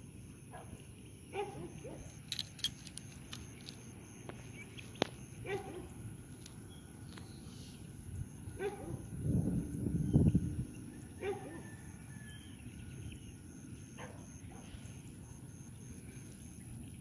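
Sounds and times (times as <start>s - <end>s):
dog barking: 0.5s - 2.1s, 5.4s - 5.9s, 8.6s - 9.1s, 11.2s - 11.8s, 14.0s - 14.7s.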